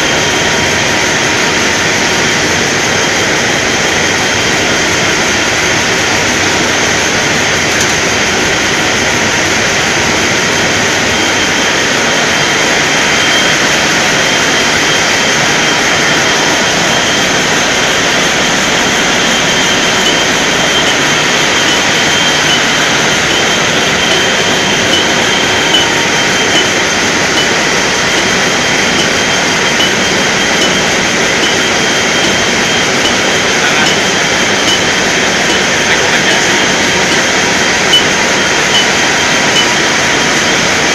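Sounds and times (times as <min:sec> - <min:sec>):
valve-lapping machine whirring: 0:00.0 - 0:40.9.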